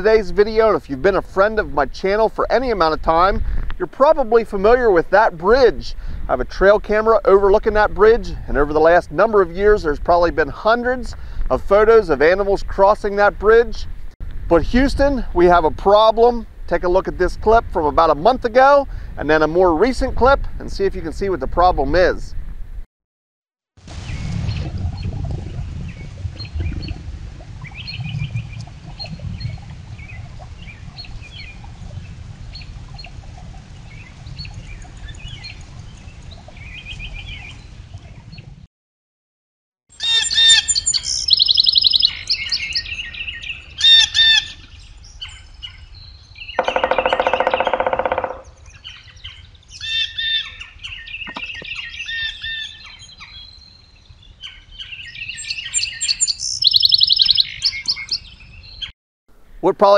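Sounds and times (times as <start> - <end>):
low rumble: 23.9 - 33.6
birds chirping and calling: 40.0 - 58.9.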